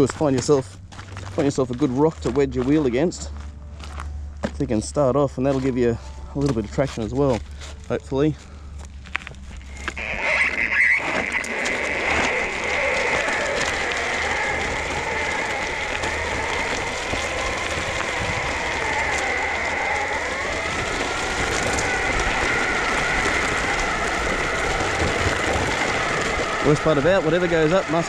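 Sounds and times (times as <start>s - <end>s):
skateboard wheels crunching on gravel: 0.0s - 28.0s.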